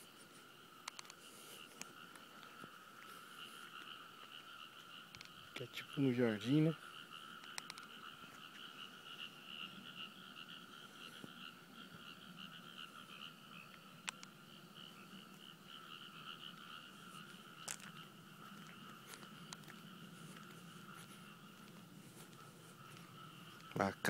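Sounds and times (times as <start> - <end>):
frogs calling: 0.0 - 24.0
sharp clicks: 0.8 - 1.2, 7.4 - 7.9, 14.0 - 14.3.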